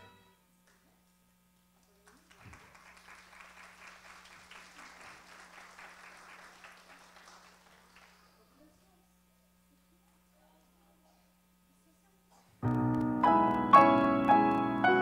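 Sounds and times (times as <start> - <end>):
audience applauding: 1.8 - 8.5.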